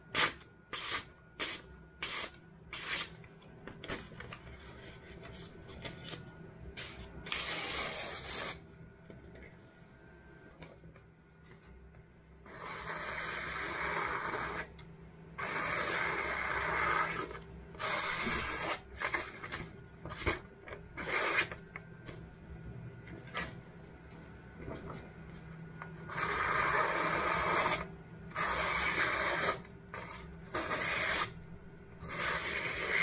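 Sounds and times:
knife slicing paper: 0.2 - 3.2.

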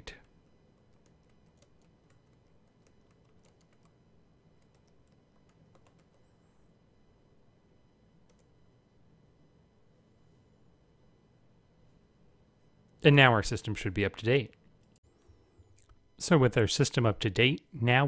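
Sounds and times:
faint keyboard typing: 0.0 - 6.6, 8.2 - 8.6.

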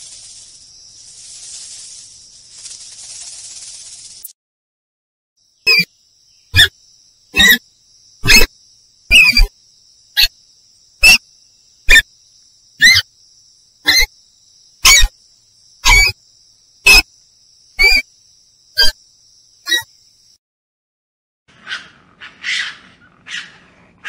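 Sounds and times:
mongoose honking yelps: 7.4 - 7.6, 8.2 - 8.5, 9.1 - 9.5, 12.8 - 13.0, 13.8 - 14.1, 15.8 - 16.2, 16.8 - 17.0, 17.8 - 18.0, 21.6 - 23.6.

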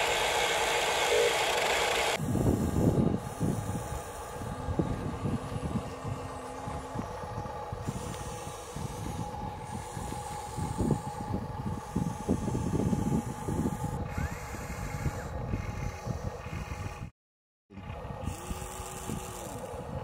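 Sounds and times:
toy truck wheels scraping sand: 0.0 - 4.2.

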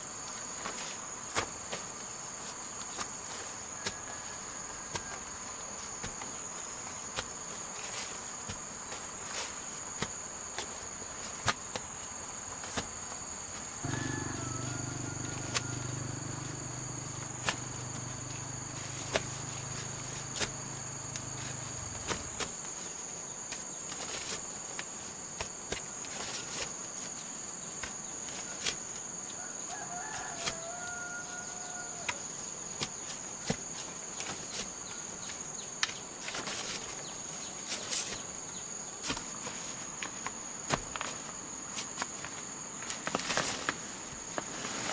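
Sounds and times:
crickets trilling: 0.1 - 44.9
rooster crowing: 13.8 - 22.0, 29.4 - 32.3
low steady hum: 13.8 - 22.4
hoe chopping into soil: 13.8 - 22.6.

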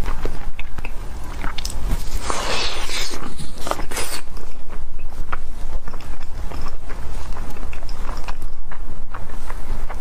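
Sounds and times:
biting and chewing food: 0.0 - 10.0
short hissing sound: 2.1 - 4.2.

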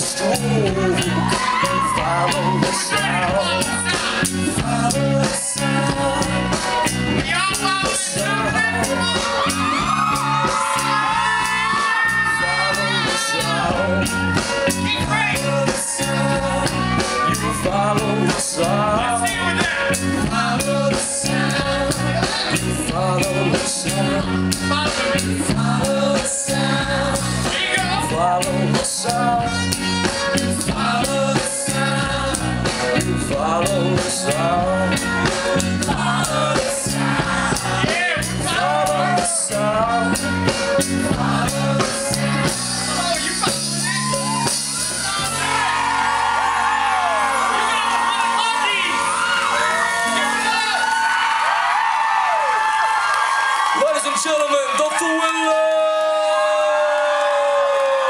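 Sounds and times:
person singing: 0.0 - 44.3
bass guitar: 0.0 - 53.8
drum kit: 0.0 - 54.2.

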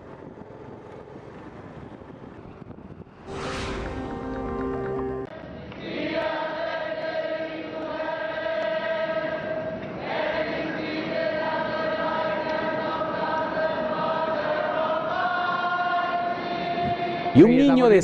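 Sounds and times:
crowd singing together: 3.3 - 17.4.

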